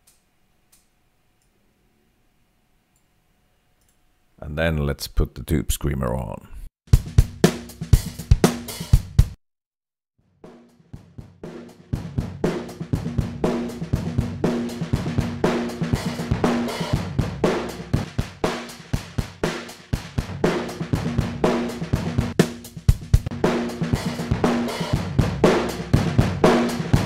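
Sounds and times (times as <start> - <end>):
overdriven drum loop: 7.0 - 9.4, 11.5 - 27.0.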